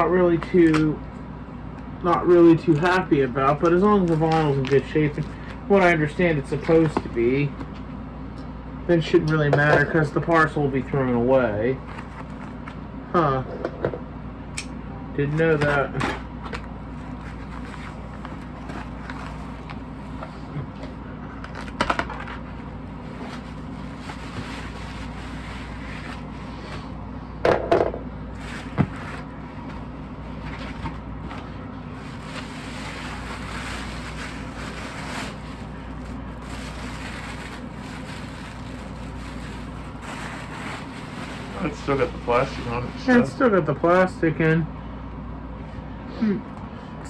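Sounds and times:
steady low hum: 0:00.0 - 0:47.0
plastic bag crinkling: 0:32.0 - 0:42.6.

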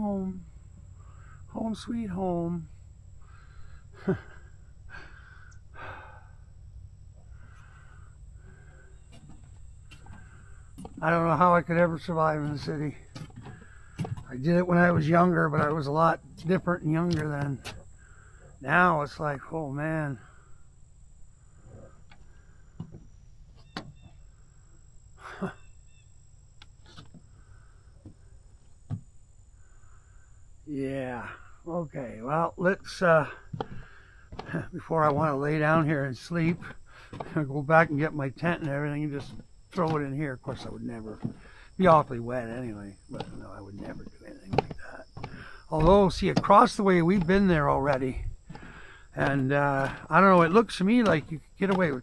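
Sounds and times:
low steady rumble: 0:00.0 - 0:52.0
man breathing slowly: 0:00.5 - 0:01.5, 0:03.2 - 0:11.0, 0:13.0 - 0:14.3, 0:17.7 - 0:18.6, 0:20.2 - 0:23.0, 0:27.1 - 0:28.8, 0:29.5 - 0:30.6, 0:31.2 - 0:31.7, 0:33.3 - 0:34.5, 0:36.6 - 0:37.4, 0:41.2 - 0:41.8, 0:45.1 - 0:45.7, 0:48.2 - 0:49.2
footsteps on wooden boardwalk: 0:07.1 - 0:19.5, 0:21.5 - 0:24.4, 0:26.6 - 0:29.2, 0:32.3 - 0:52.0.

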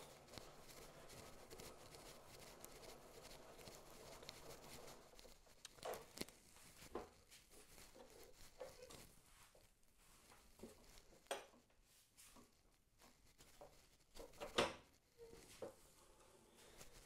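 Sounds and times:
faint knocks and clicks: 0:00.2 - 0:09.1.

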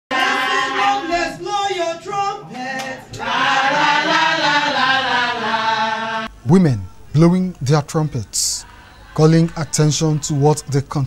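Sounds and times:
women singing chant-like song: 0:00.1 - 0:06.3, 0:08.6 - 0:09.2.

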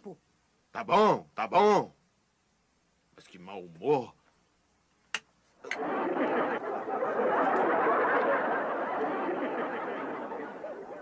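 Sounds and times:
audience laughter: 0:05.6 - 0:11.0.

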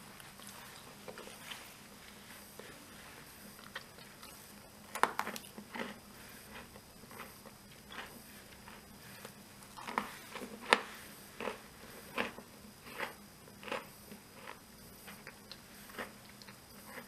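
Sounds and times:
waffles snapping: 0:04.9 - 0:05.6.

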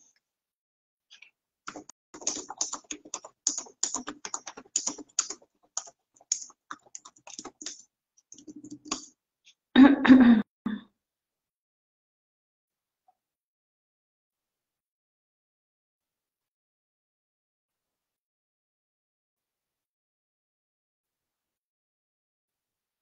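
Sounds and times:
keys being typed: 0:01.7 - 0:09.1.

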